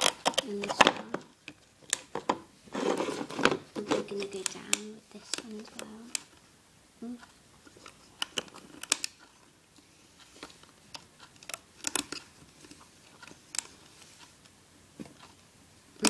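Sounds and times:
rubber bands clicking and snapping: 0.0s - 2.4s, 7.2s - 9.3s, 10.9s - 13.7s.

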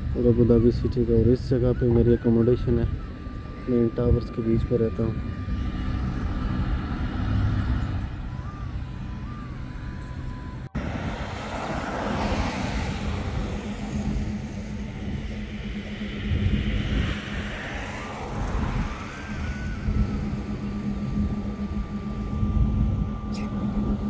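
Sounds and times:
low motor hum: 0.0s - 24.0s
rushing noise: 10.7s - 24.0s.

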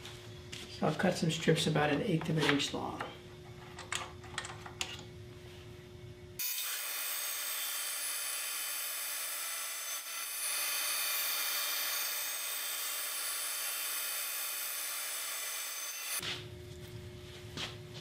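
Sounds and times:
sped-up band saw whine: 6.4s - 16.2s.

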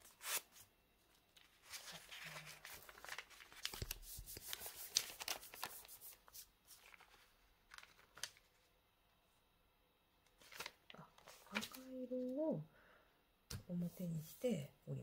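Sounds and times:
paper rustling and crinkling: 0.0s - 8.8s, 10.3s - 12.3s.

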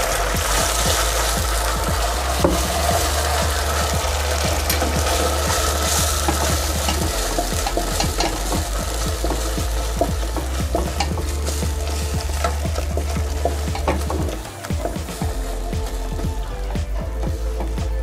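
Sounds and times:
sauce bubbling and sizzling: 0.0s - 18.0s
wooden spatula stirring: 0.0s - 18.0s.

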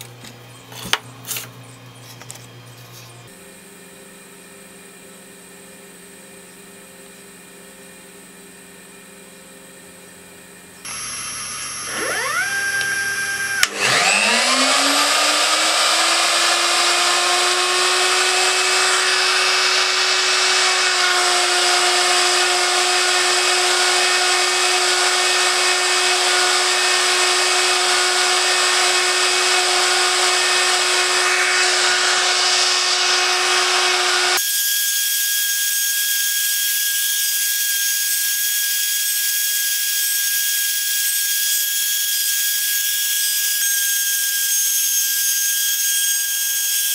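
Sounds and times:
router spindle whine: 10.4s - 41.6s.

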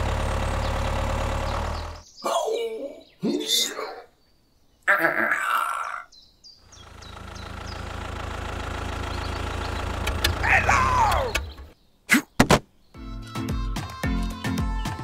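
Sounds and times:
tractor engine running: 0.0s - 2.0s, 6.7s - 11.8s.

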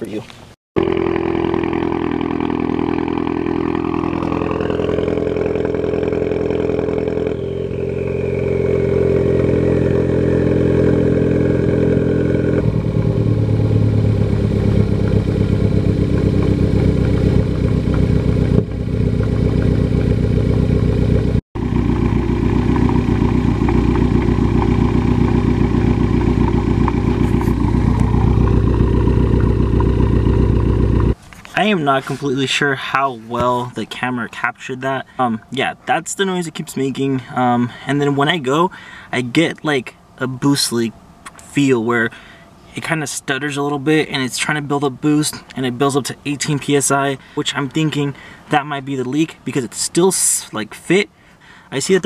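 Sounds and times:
car engine idling: 0.8s - 31.2s.

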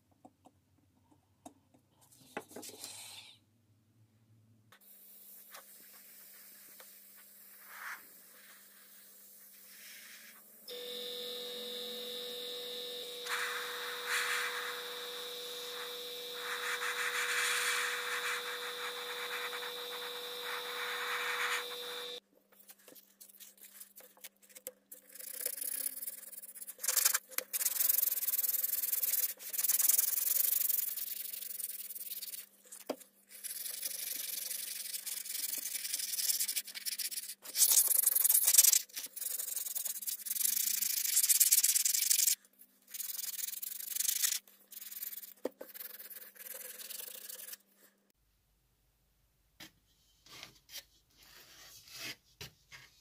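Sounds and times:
airbrush compressor running: 10.7s - 22.2s
air hissing: 13.2s - 22.2s
sandpaper rubbing on metal: 16.4s - 22.0s.

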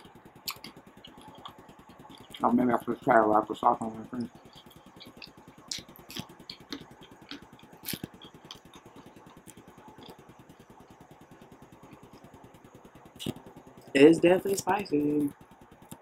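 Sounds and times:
person chewing: 0.4s - 2.6s, 4.2s - 10.6s.

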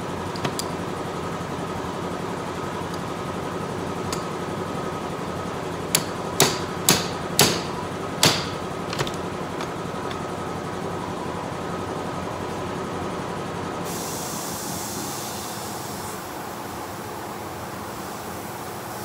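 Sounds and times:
steady mechanical hum: 0.0s - 19.0s
hammer striking steel: 5.9s - 8.7s.

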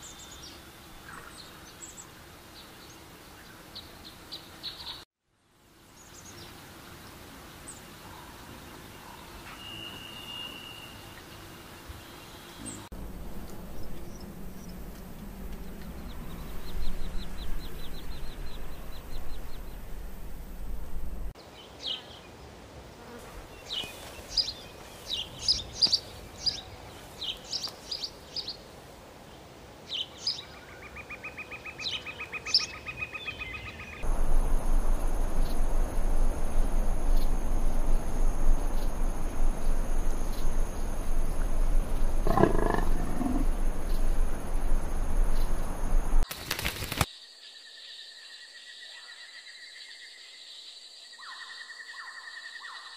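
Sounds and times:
insects buzzing and trilling: 5.6s - 21.4s, 23.0s - 28.7s, 34.0s - 52.9s
steady hiss: 34.0s - 47.1s.

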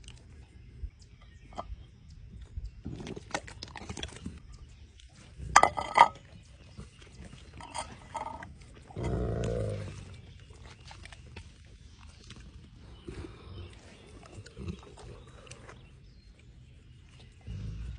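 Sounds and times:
dogs chewing meat: 6.2s - 17.9s
dog grunting: 8.2s - 10.2s.

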